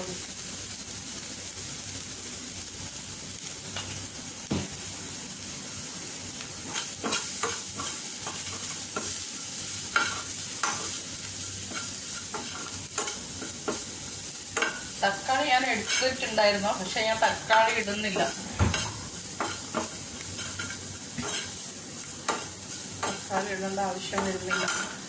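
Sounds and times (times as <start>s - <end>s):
onions sizzling in oil: 0.0s - 25.0s
spatula scraping and tapping pan: 6.6s - 9.2s, 9.9s - 11.0s, 11.6s - 15.0s, 15.8s - 16.2s, 17.6s - 23.3s, 24.1s - 25.0s.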